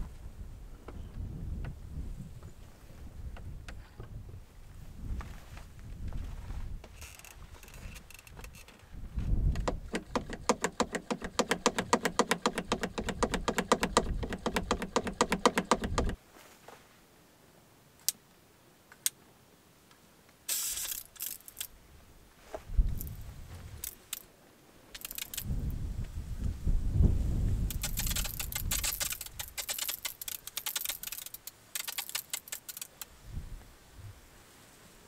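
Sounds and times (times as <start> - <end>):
metallic ratcheting clicks: 7.0 - 8.7, 9.6 - 16.2, 20.5 - 21.7, 23.8 - 24.3, 24.9 - 25.5, 27.7 - 33.1
rustles of handling: 16.2 - 17.1, 20.5 - 24.3.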